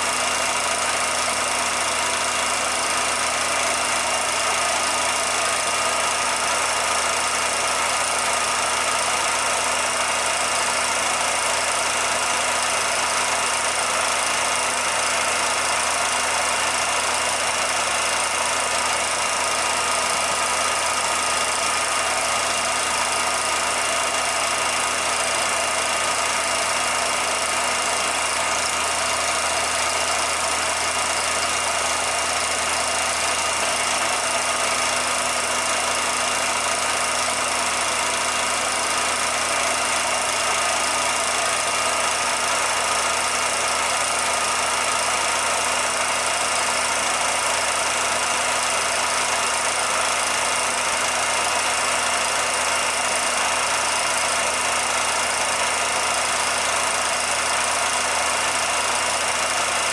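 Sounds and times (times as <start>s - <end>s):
film projector whirring: 0.0s - 59.9s.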